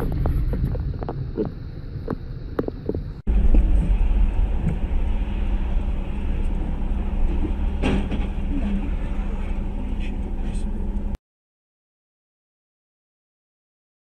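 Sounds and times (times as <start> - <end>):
car engine rumble: 0.0 - 11.2
road noise: 0.0 - 11.2.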